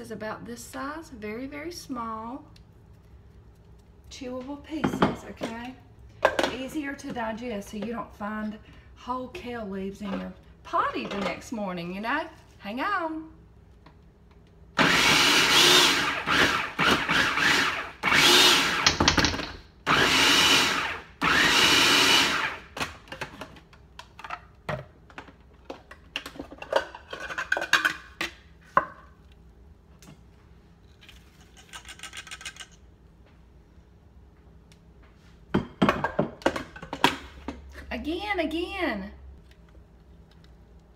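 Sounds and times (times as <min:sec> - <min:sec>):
food processor motor bursts: 0:14.8 - 0:19.0, 0:19.8 - 0:22.8.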